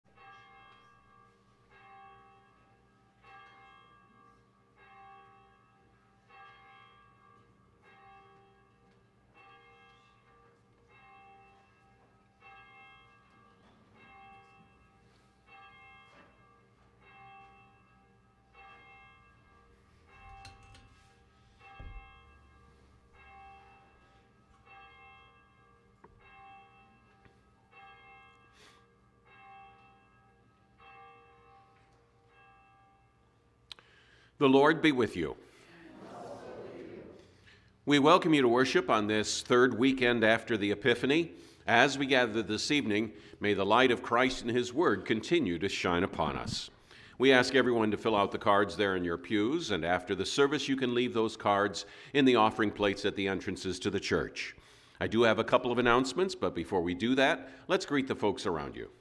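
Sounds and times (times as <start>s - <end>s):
church bell tolling: 0.1s - 59.0s.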